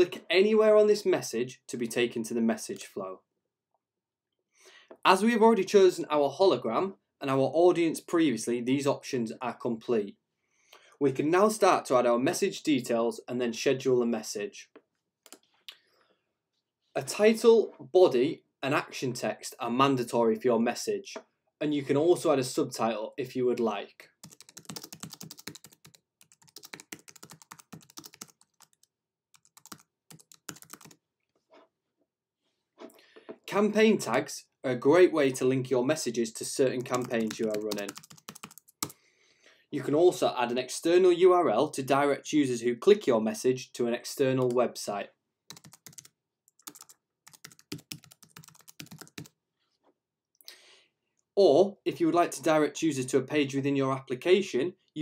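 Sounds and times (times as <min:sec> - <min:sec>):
faint keyboard typing: 0:15.2 - 0:15.6, 0:23.6 - 0:31.0, 0:36.7 - 0:39.0, 0:44.4 - 0:44.6, 0:45.5 - 0:49.4.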